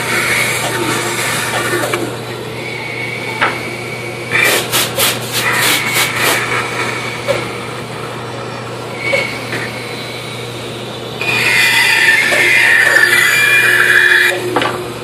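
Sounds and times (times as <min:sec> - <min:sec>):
band saw cutting wood: 0:11.2 - 0:14.3.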